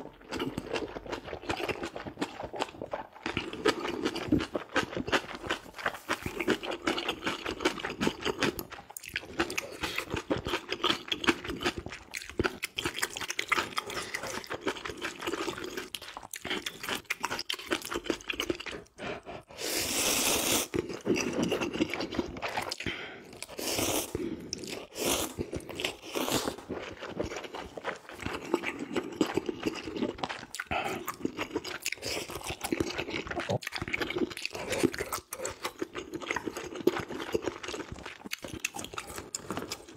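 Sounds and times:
wet chewing and smacking: 0.0s - 19.5s, 20.7s - 23.6s, 24.4s - 39.9s
slurping noodles: 17.8s - 35.6s.

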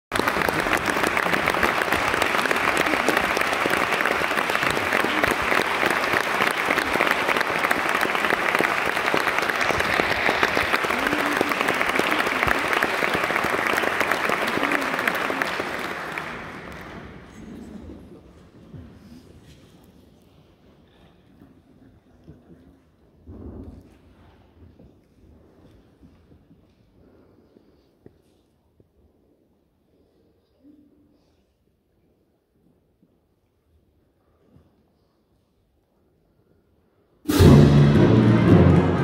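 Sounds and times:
hands clapping close by: 0.1s - 17.0s
audience applauding in a hall: 0.1s - 18.7s, 37.3s - 39.0s.

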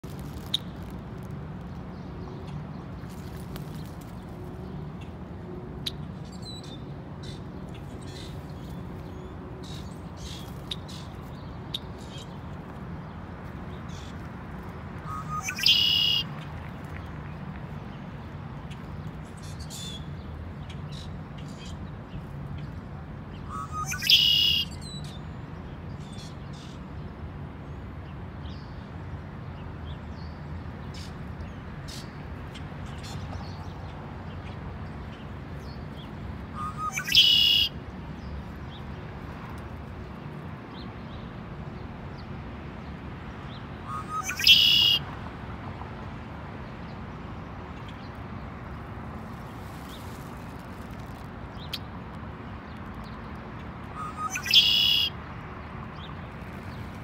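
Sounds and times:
blackbird singing: 15.1s - 16.2s, 23.5s - 25.0s, 36.6s - 37.7s, 43.9s - 45.0s, 54.0s - 55.1s.

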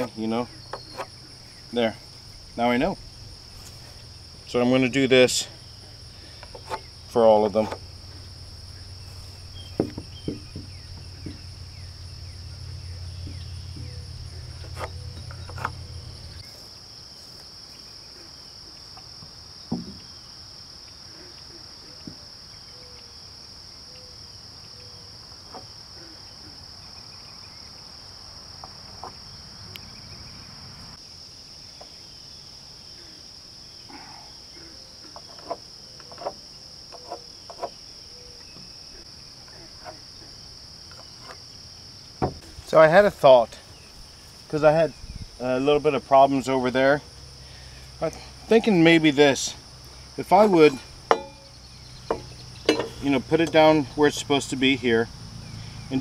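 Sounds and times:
insects trilling: 0.0s - 56.0s
low hum: 1.2s - 16.5s
knocks on wood and metal: 9.7s - 11.4s, 19.7s - 20.0s, 42.2s - 42.5s, 51.1s - 53.6s.

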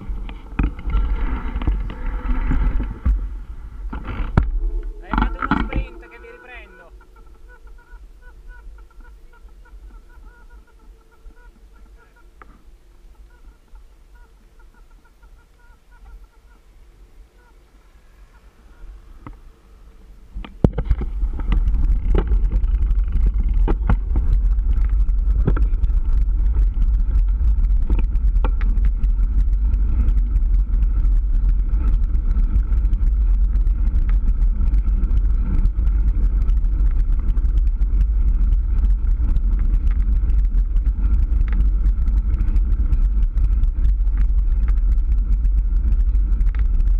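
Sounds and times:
wind rushing over microphone: 0.0s - 14.2s, 18.0s - 46.9s
faint chirping: 4.5s - 20.3s
bike rattling clicks and knocks: 20.5s - 46.9s.

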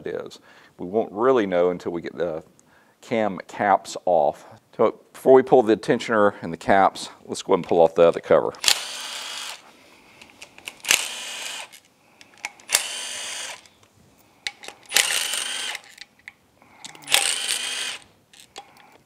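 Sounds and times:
power driver whirring: 8.6s - 9.7s, 10.6s - 11.8s, 12.4s - 13.8s, 14.5s - 16.1s, 16.8s - 19.0s.

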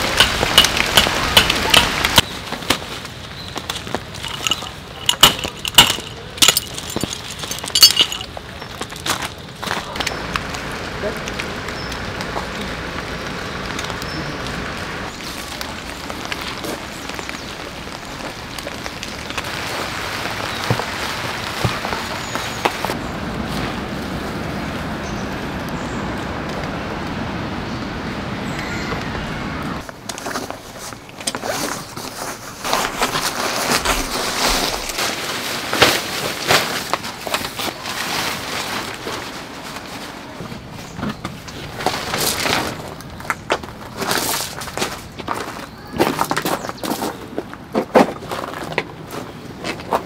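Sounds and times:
footsteps on gravel: 0.0s - 23.8s, 29.8s - 50.0s
heavy rain on tent fabric: 0.0s - 27.6s, 29.6s - 46.2s
rustling fabric: 30.0s - 45.1s.

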